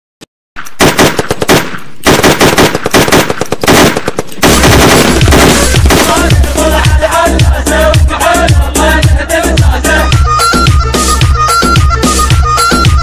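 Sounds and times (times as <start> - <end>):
machine-gun fire in rapid bursts: 0.8 - 6.6
music with heavy bass beat: 4.6 - 13.0.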